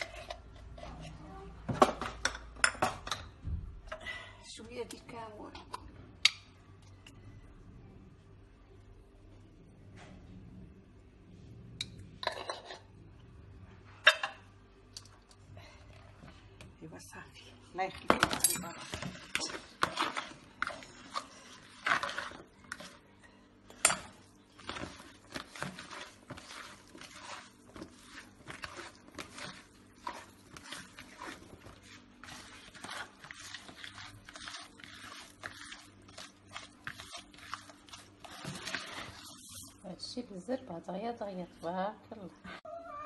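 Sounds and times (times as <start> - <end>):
hands mixing meat in bowl: 17.8 - 40.8.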